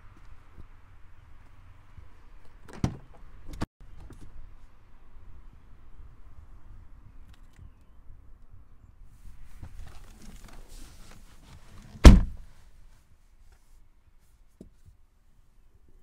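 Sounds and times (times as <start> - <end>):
rustling movement: 9.1 - 15.0
car door shutting: 11.9 - 12.4.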